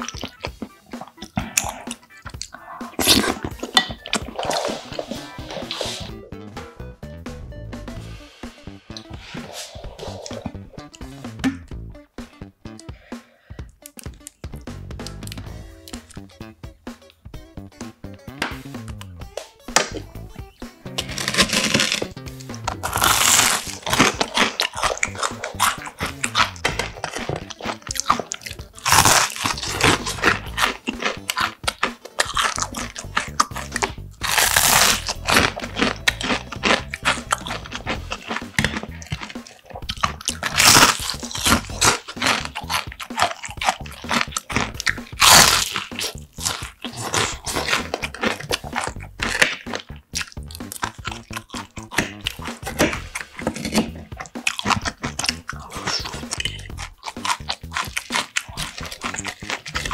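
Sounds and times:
crunching and chewing fried food: 0.0s - 6.0s, 13.7s - 16.3s, 20.9s - 59.9s.

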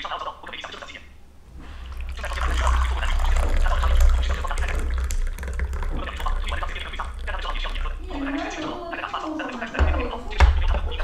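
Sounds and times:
tea pouring into a glass: 1.8s - 8.7s.

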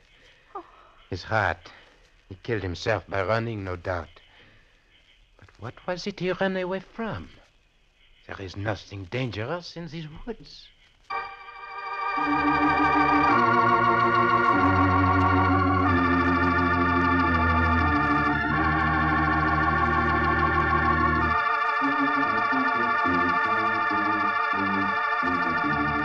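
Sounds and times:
organ chords: 11.1s - 26.0s
deep bass line: 12.2s - 26.0s.

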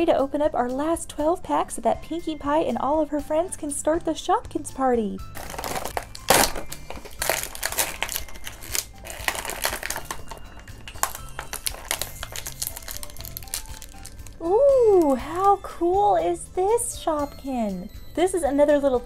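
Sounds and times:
plastic packaging crinkling: 5.4s - 15.6s.

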